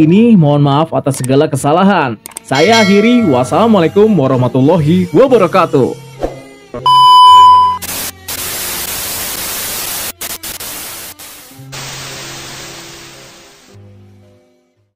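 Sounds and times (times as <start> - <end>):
test-pattern beep: 6.9 - 7.8
tv static hiss: 7.7 - 13.8.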